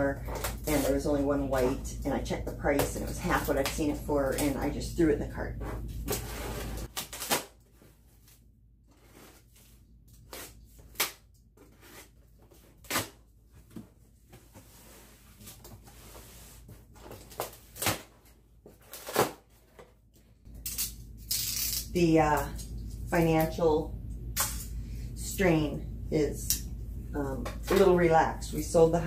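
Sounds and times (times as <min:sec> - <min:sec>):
cardboard crackling and rustling: 0:05.5 - 0:11.0.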